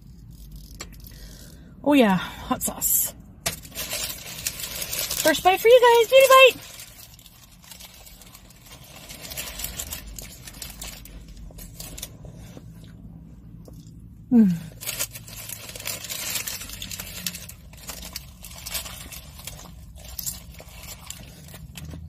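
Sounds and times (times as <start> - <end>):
crunchy taco shell chewing: 6.6 - 13.0, 14.7 - 22.0.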